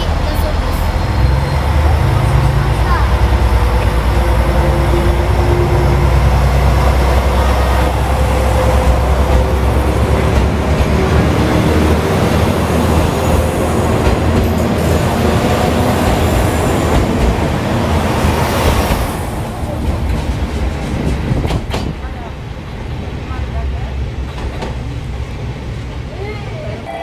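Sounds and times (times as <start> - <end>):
diesel train engine humming: 0.0 - 27.0
train cars clattering on rails: 6.0 - 26.8.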